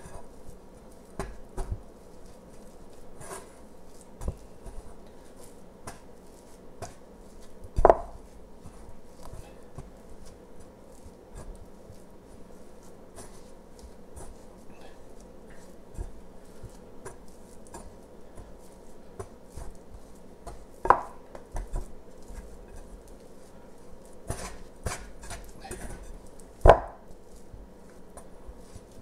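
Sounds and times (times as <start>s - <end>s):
dough squishing: 0.0s - 29.0s
flour rustling: 0.0s - 29.0s.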